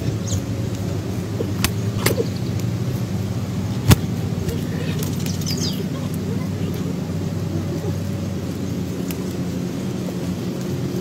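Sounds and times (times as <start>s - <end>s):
low motor hum: 0.0s - 11.0s
sharp clicks: 1.5s - 2.7s.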